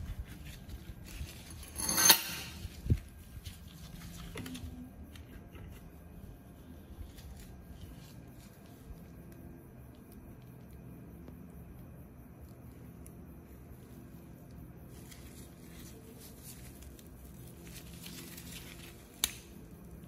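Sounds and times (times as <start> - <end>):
rusty metal scraping: 1.4 - 2.8.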